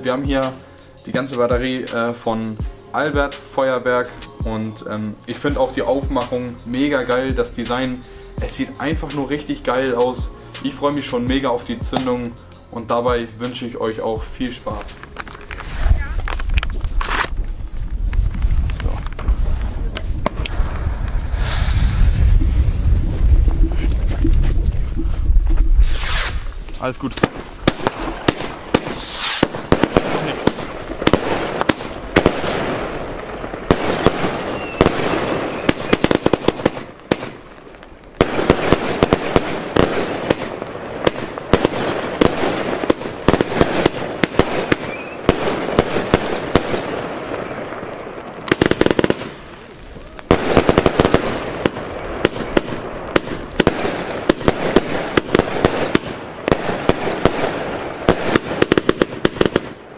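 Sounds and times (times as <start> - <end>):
firework battery firing: 14.7 - 24.4, 25.6 - 59.9.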